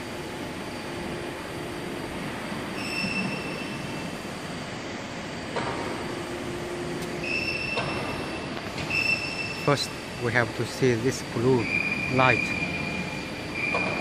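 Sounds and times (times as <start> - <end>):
high-pitched whine: 7.1 - 14.0.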